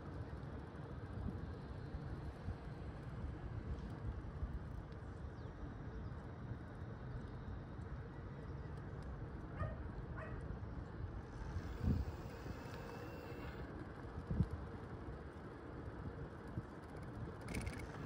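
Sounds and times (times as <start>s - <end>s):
wind on microphone: 11.4s - 13.6s.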